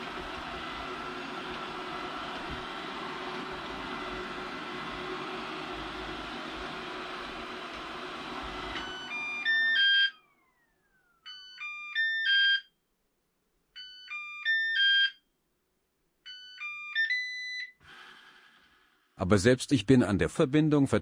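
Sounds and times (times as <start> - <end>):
fan whine spinning down: 0.0 - 11.2.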